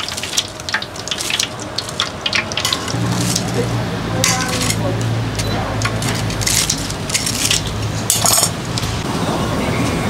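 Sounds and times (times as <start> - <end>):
fried snacks crunching: 0.0 - 3.7, 6.0 - 8.9.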